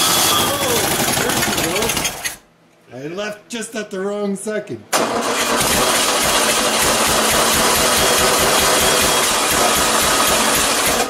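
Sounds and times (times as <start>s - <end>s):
unmuffled engine running loudly: 5.5s - 11.0s.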